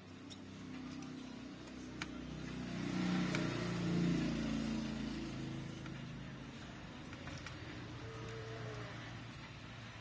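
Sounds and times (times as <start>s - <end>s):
vehicle engine passing by: 0.7s - 6.4s.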